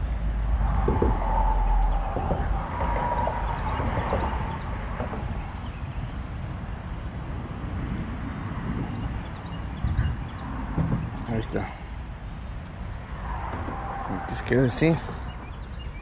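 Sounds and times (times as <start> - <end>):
low outdoor rumble: 0.0 - 16.0.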